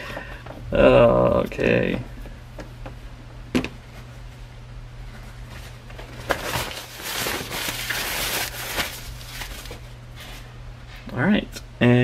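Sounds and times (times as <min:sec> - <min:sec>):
steady low hum: 0:00.0 - 0:12.0
rustling and shuffling: 0:03.7 - 0:11.3.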